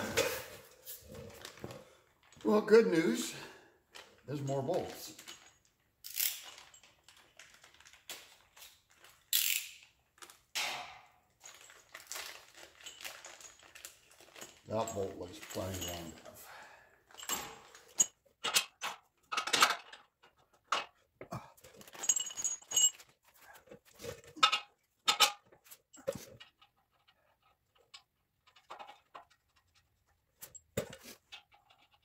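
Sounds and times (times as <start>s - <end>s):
metal bolts clinking and knocking: 12.6s - 16.4s, 17.1s - 32.0s.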